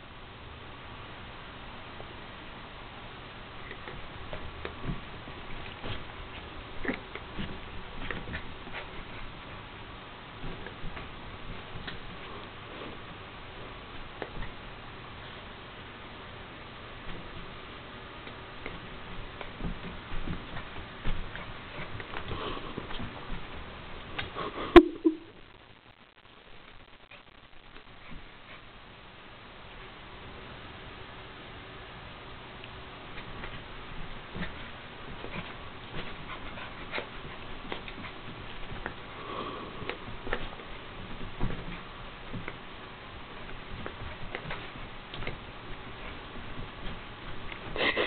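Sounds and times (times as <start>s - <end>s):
dog paws scrabbling on carpet: 3.6s - 15.5s, 16.5s - 24.4s, 26.6s - 28.8s, 32.6s - 48.0s
breathy sound: 39.1s - 40.1s.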